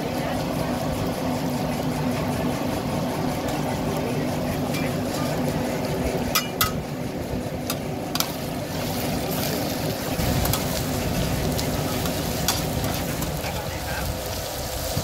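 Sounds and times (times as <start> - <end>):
eggs sizzling on a pan: 7.6 - 15.0.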